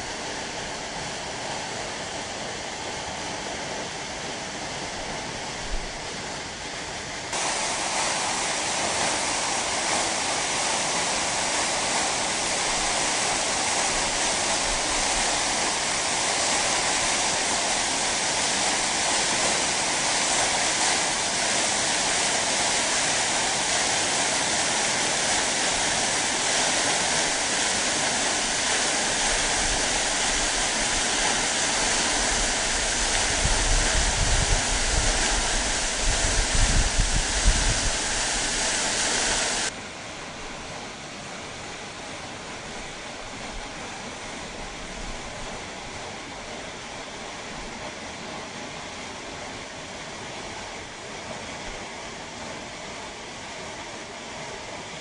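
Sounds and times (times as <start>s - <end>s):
waterfall rushing and splashing: 7.3s - 39.8s.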